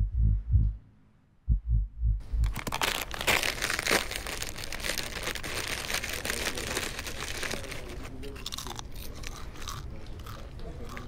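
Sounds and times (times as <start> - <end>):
deep low thumps: 0.0 - 2.6
chip bag crinkling: 2.4 - 11.0.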